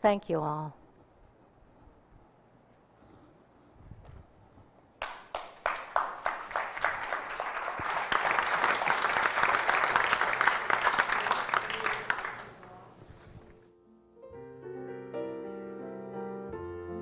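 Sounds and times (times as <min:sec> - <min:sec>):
congregation applauding: 0:05.0 - 0:13.0.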